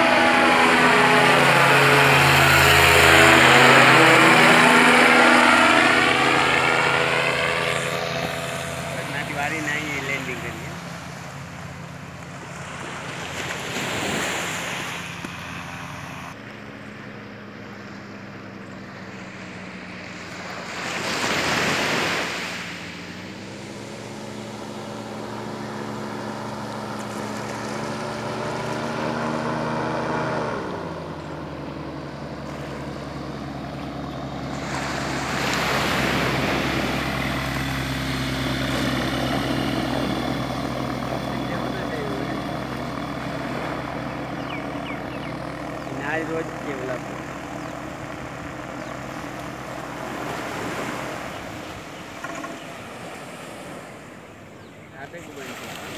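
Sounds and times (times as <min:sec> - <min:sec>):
engine and propeller droning: 0:00.0 - 0:55.9.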